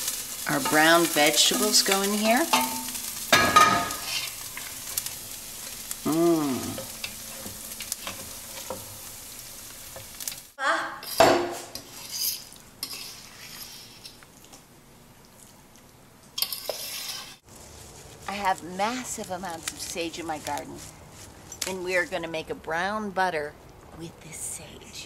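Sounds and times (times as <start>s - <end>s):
stew sizzling in pot: 0.0s - 22.9s
spoon scraping pot: 11.1s - 14.2s, 16.4s - 17.4s.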